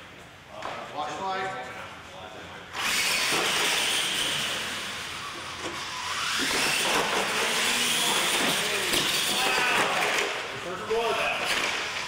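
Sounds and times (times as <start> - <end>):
toy truck motors whining: 2.7 - 10.5.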